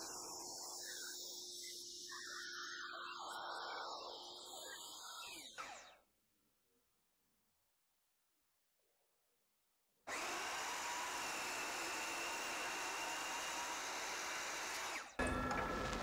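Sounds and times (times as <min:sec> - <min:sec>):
miter saw cutting metal: 0:10.1 - 0:16.0.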